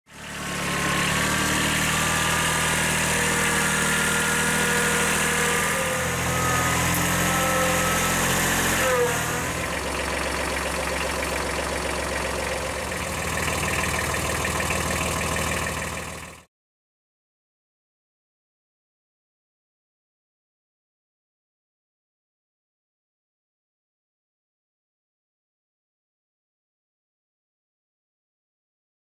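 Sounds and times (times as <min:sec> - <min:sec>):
engine whine sliding in pitch: 0:00.1 - 0:16.4
tractor engine running: 0:00.1 - 0:16.5.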